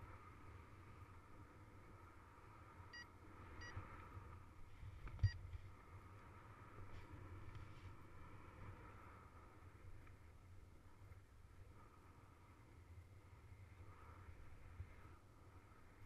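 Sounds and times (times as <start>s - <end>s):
wind rumble on microphone: 0.0s - 16.0s.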